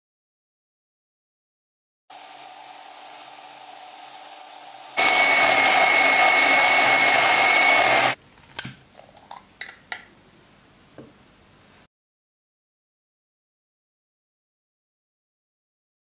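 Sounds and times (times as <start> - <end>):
electric hand mixer whirring: 2.1 - 8.2.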